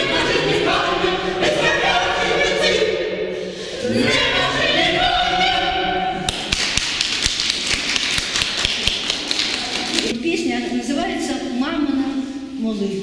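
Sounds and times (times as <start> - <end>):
choir singing unaccompanied: 0.0 - 6.5
audience applause: 6.3 - 10.1.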